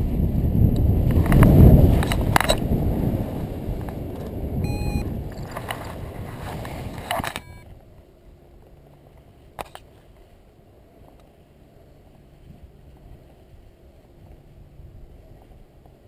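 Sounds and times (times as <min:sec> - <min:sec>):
wind rushing over microphone: 0:00.0 - 0:08.1, 0:12.2 - 0:16.0
sharp click: 0:07.0 - 0:07.5.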